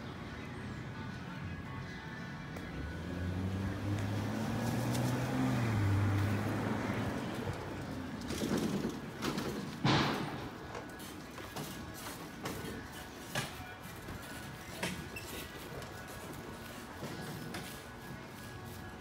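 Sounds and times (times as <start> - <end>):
vehicle engine droning: 2.6 - 10.0.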